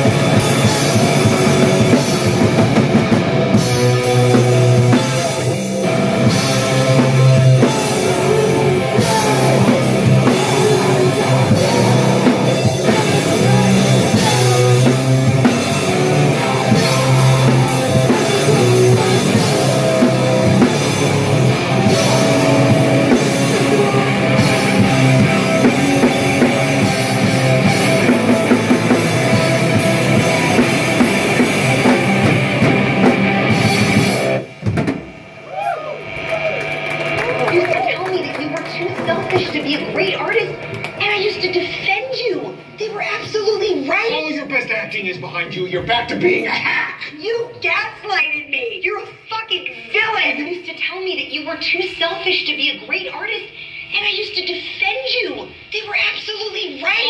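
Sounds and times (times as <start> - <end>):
electric guitar: 0.0 - 42.8
drum kit: 0.0 - 43.6.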